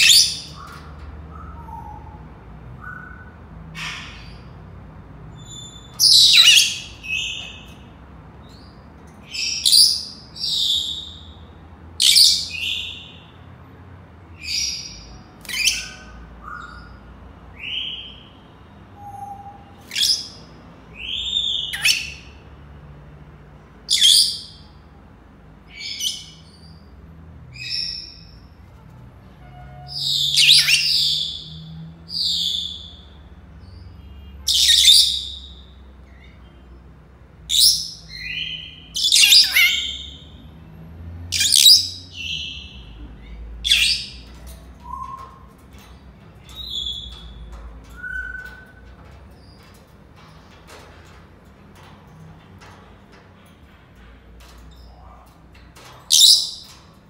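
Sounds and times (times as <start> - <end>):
parrots whistling and squawking: 0.0 - 4.6, 5.4 - 7.8, 14.4 - 18.3, 19.0 - 20.4, 21.0 - 22.4, 29.8 - 31.5, 34.4 - 35.6, 37.5 - 40.2, 41.3 - 42.7, 43.6 - 45.7, 46.5 - 49.0, 56.1 - 56.8.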